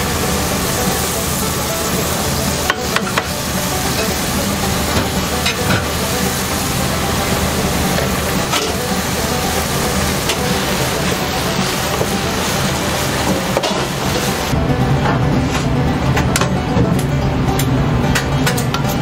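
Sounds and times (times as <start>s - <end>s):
food sizzling in a frying pan: 0.0s - 14.5s.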